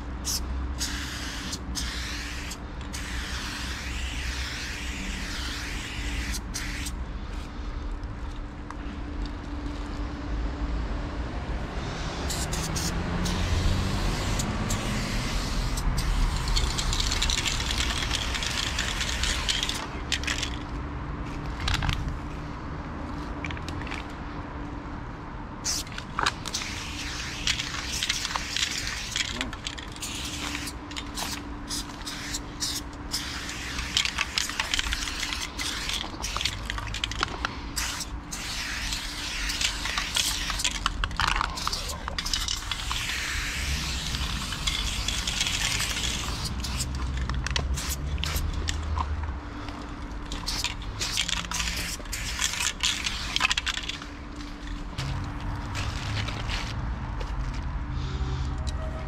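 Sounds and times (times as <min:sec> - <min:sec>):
spray paint hissing: 0:00.0 - 0:07.4, 0:11.8 - 0:20.7, 0:25.6 - 0:48.9, 0:49.6 - 0:54.1, 0:54.9 - 0:56.8.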